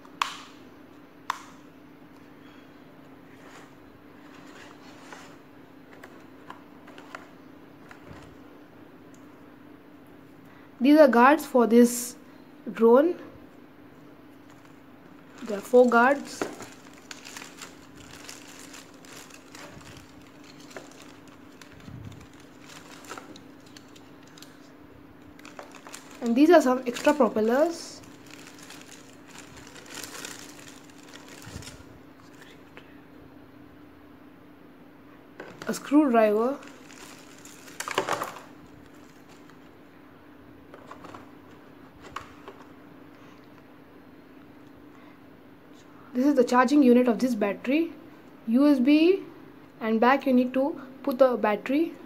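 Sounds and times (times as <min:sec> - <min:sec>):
steady low hum: 0:00.0 - 0:52.0
plastic bag crinkling: 0:14.5 - 0:32.6, 0:35.4 - 0:39.8.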